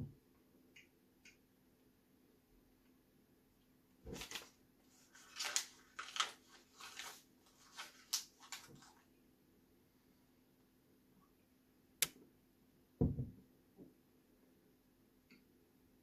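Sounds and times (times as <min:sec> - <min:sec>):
paper crinkling and tearing: 0:04.1 - 0:09.1.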